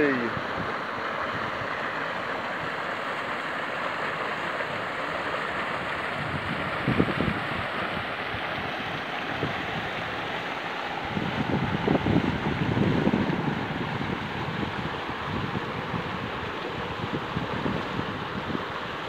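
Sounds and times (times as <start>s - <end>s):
river water rushing: 0.0s - 19.0s
wind buffeting microphone: 5.7s - 10.3s, 11.0s - 19.0s.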